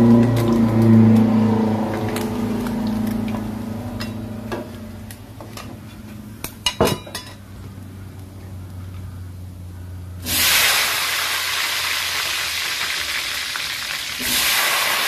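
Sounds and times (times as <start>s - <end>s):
low hum: 0.0s - 6.2s.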